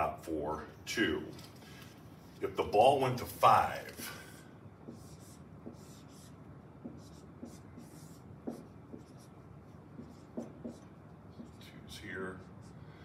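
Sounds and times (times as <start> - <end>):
marker writing on whiteboard: 4.8 - 12.8.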